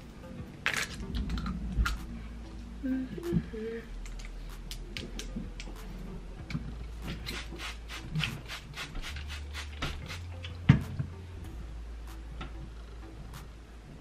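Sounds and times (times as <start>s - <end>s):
spray bottle misting: 7.1s - 10.3s.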